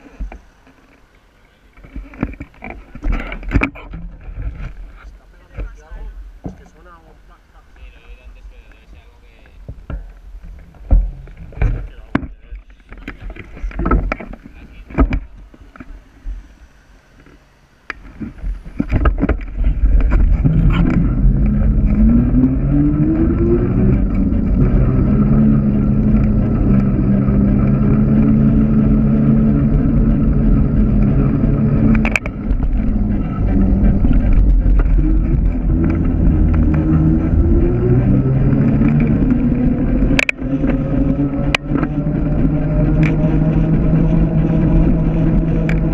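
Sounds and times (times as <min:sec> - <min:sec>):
rising hum: 0:00.0 - 0:45.9
wind on microphone: 0:18.0 - 0:45.9.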